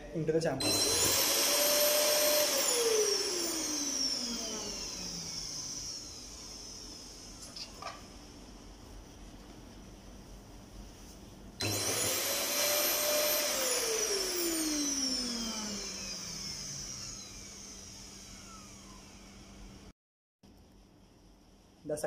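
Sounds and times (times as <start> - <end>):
vacuum cleaner motor whining: 0.6 - 8.3, 11.6 - 19.9.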